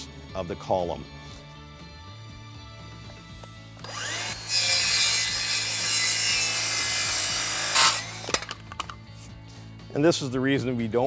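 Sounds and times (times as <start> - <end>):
circular saw cutting plastic boards: 3.8 - 8.6.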